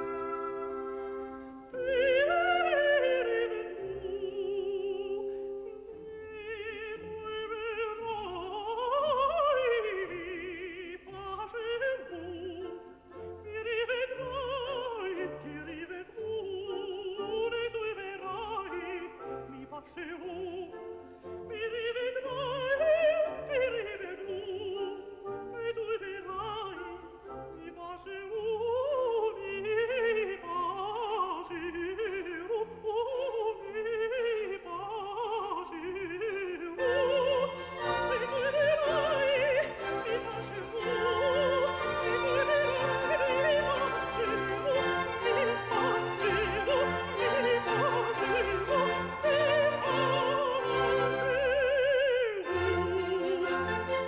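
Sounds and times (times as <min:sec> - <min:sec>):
orchestral accompaniment: 0:00.0 - 0:31.2, 0:34.8 - 0:54.0
high voice singing operatic aria: 0:01.7 - 0:20.9, 0:21.5 - 0:53.9.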